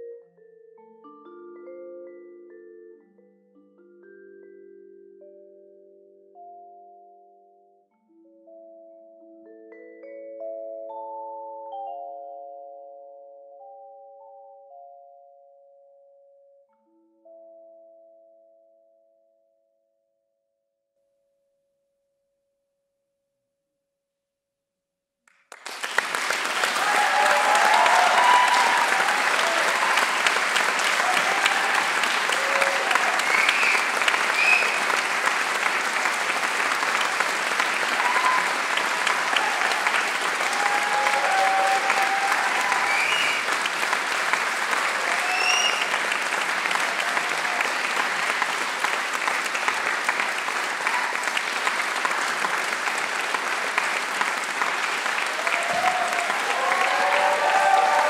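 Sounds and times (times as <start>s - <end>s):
audience applauding: 25.3s - 58.0s
crowd cheering: 25.5s - 58.0s.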